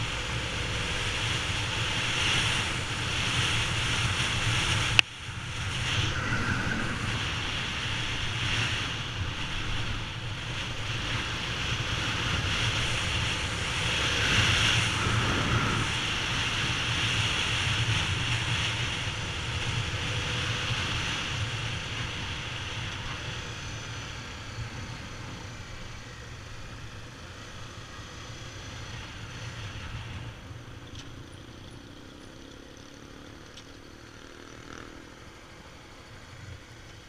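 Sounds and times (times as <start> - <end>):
wind on microphone: 2.1 - 26.2.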